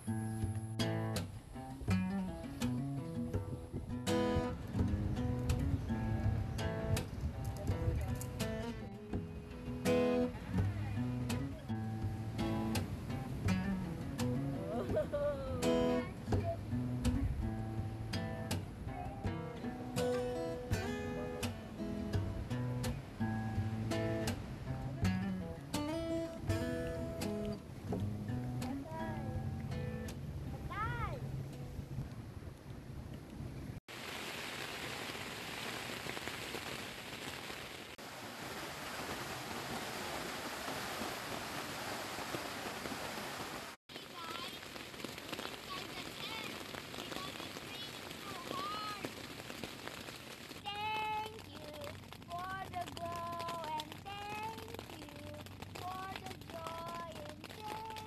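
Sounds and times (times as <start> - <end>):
acoustic guitar strumming chords: 0.0 - 7.1, 7.7 - 30.4
rain on a tent: 0.0 - 58.0.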